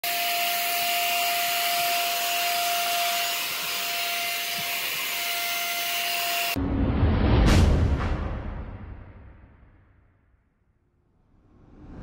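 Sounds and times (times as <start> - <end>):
handheld vacuum running: 0.0 - 6.6.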